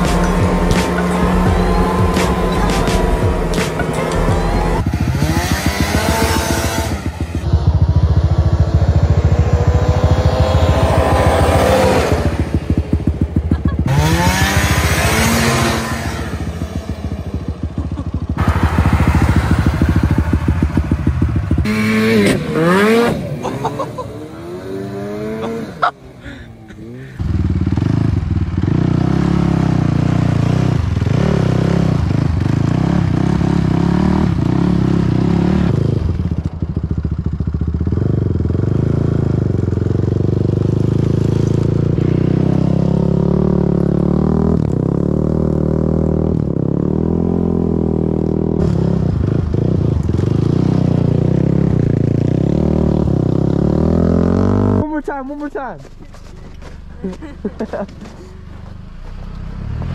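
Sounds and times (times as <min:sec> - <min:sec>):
small engine revving: 0:00.0 - 0:16.6, 0:18.4 - 0:36.2
quad bike engine: 0:00.0 - 0:59.9.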